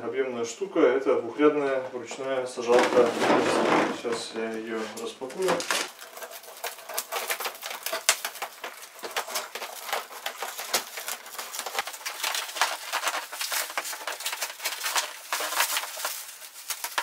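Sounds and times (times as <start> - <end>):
plastic film crinkling: 2.1 - 17.0.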